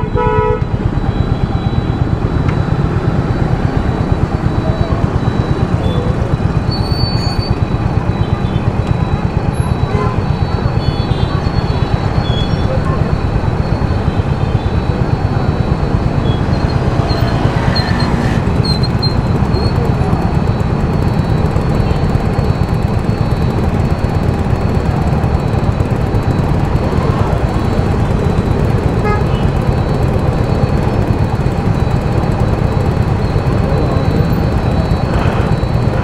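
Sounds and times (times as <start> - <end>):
vehicle road and wind noise: 0.0 - 36.0
heavy low rumble: 7.6 - 36.0.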